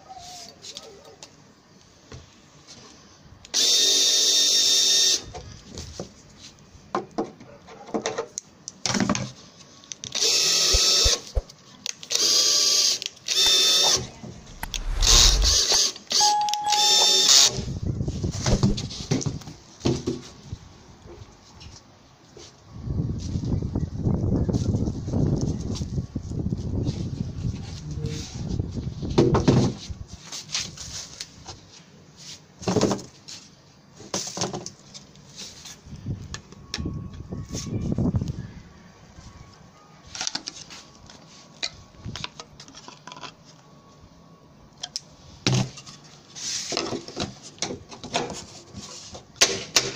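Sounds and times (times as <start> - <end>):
cordless drill motor whine: 12.2 - 17.5.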